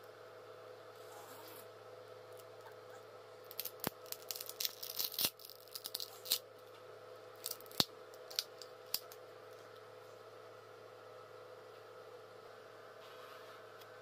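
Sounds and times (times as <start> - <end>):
plastic crackling and tearing: 3.4 - 6.4, 7.4 - 9.2
sharp plastic snaps: 7.4 - 9.2.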